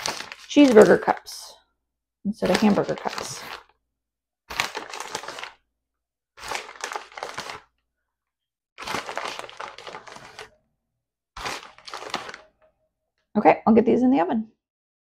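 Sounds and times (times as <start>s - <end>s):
plastic bag crinkling: 0.0s - 1.5s, 2.4s - 3.8s, 4.5s - 5.6s, 6.4s - 7.7s, 8.8s - 10.6s, 11.4s - 12.6s.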